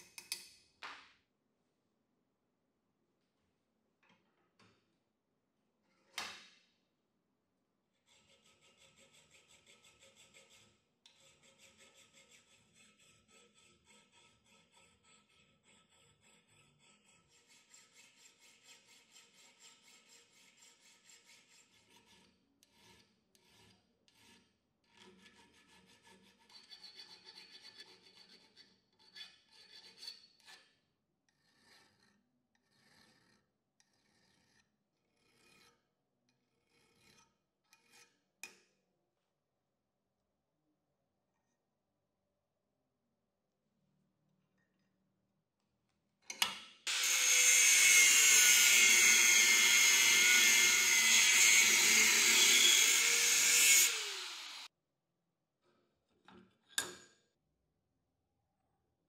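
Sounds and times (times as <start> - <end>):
hand file rasping on steel: 8.0 - 38.6, 46.9 - 54.7.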